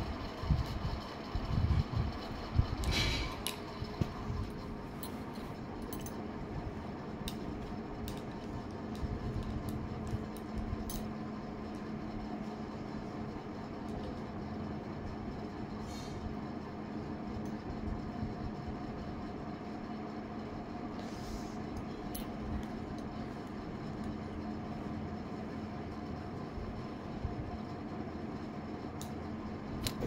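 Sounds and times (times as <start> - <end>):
steady low hum: 0.0 - 30.0
bangles clinking: 5.0 - 6.2.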